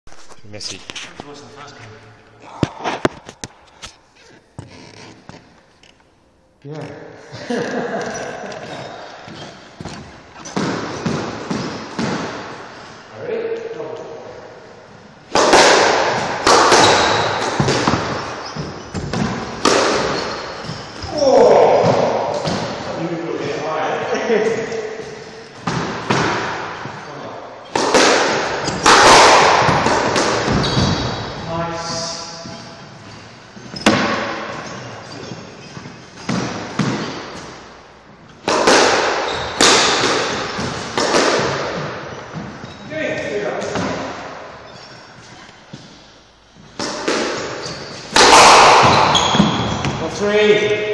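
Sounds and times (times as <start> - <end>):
squash ball hits echoing: 9.3 - 12.9, 15.2 - 23.1, 24.6 - 31.6, 32.2 - 44.5, 46.6 - 50.9.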